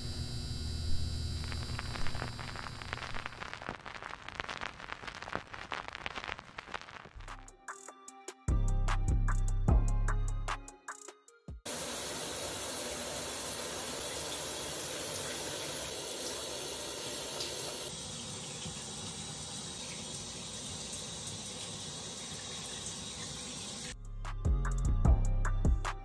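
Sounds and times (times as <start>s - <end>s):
music with a beat: 7.2s - 11.7s, 24.0s - 26.0s
shower water running: 11.7s - 24.0s.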